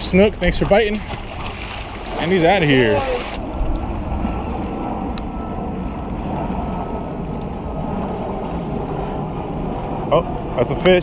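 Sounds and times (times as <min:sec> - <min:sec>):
wind on microphone: 0:00.0 - 0:11.0
waves lapping against rocks: 0:00.4 - 0:04.4
faint steady whine: 0:02.3 - 0:11.0.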